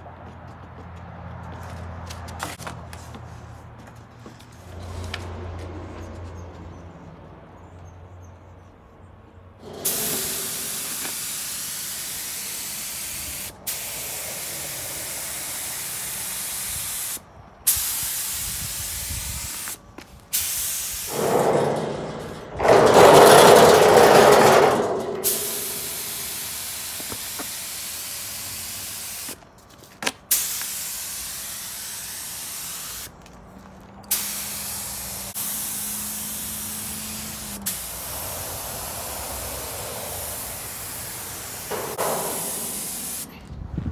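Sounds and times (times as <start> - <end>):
spray gun hissing: 9.6 - 21.3, 25.2 - 29.4, 30.3 - 33.1, 34.1 - 43.4
low rushing noise: 37.8 - 43.4.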